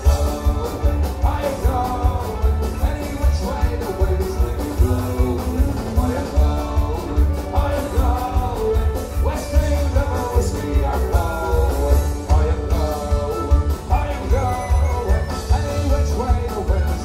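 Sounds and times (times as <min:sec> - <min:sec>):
drum kit with heavy kick: 0:00.0 - 0:17.0.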